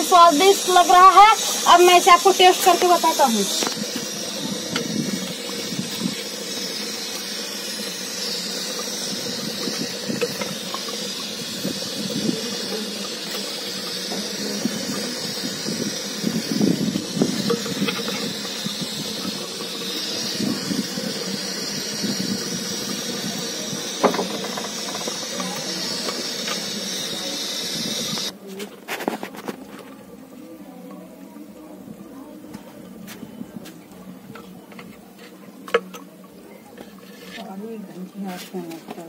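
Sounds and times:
steam hissing: 0.0 - 29.5
ladle scraping through gravy: 36.8 - 37.6.

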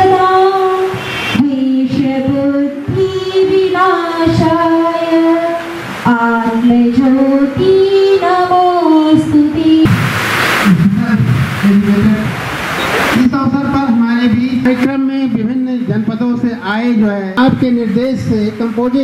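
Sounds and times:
woman singing: 0.0 - 9.9.

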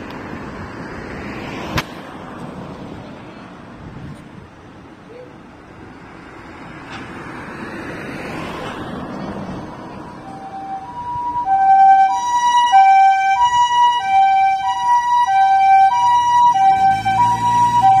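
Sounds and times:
ambulance engine and tyres: 0.0 - 18.0
two-tone siren: 10.0 - 18.0.

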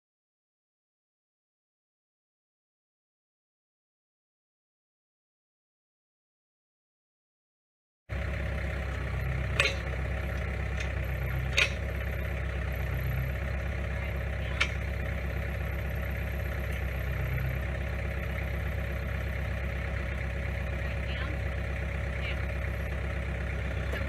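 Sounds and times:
tractor engine idling: 8.1 - 24.0.

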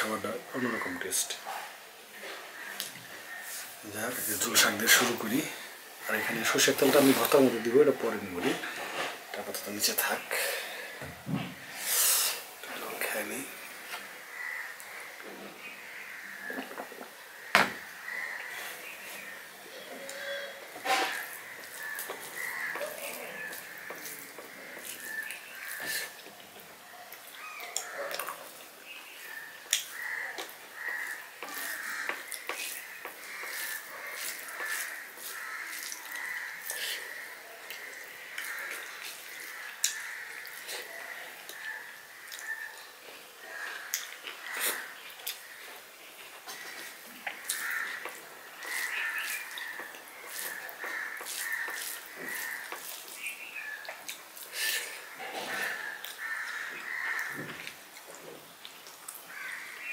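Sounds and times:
crows cawing: 2.2 - 9.0, 13.1 - 26.2, 27.4 - 45.8, 46.4 - 53.9, 54.5 - 57.7, 59.3 - 59.9
person chewing: 21.1 - 41.7, 42.3 - 59.2
hand squishing wet rice: 27.3 - 40.8, 46.5 - 54.9.

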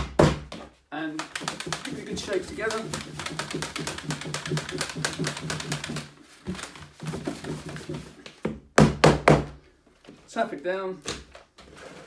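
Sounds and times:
powder rattling in shaken plastic tub: 1.2 - 8.2.

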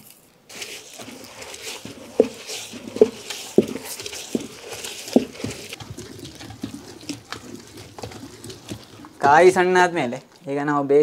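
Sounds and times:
wet gritty stone grinding: 0.5 - 10.5
stone knocking on stone: 1.0 - 6.0.

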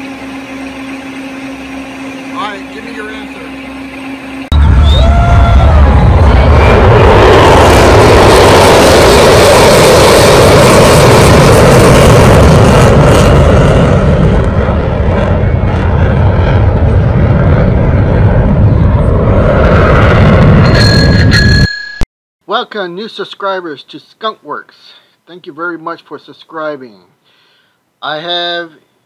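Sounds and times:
jet fighter engine roar: 0.0 - 21.2.

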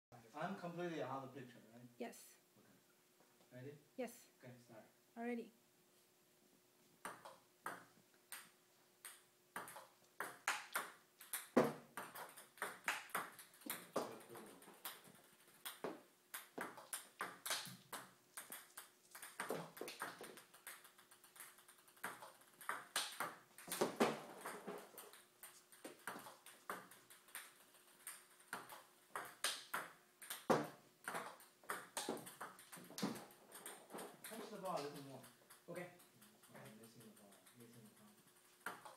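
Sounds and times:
ball bouncing on table: 7.0 - 37.6, 38.6 - 38.9
table tennis ball hitting paddles: 7.0 - 38.9.

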